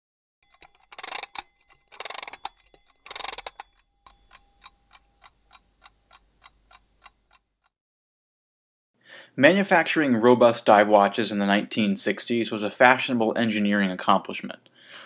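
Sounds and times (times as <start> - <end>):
rapid ratcheting clicks: 0.4 - 7.4
clock ticking: 0.4 - 7.7.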